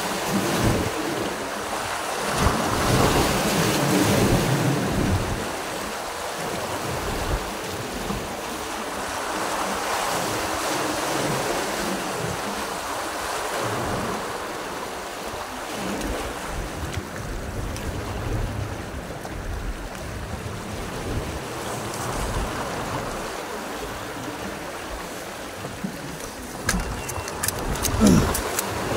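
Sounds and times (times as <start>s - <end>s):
waves washing against rocks: 0.0s - 28.9s
wind gusting on microphone: 0.0s - 28.9s.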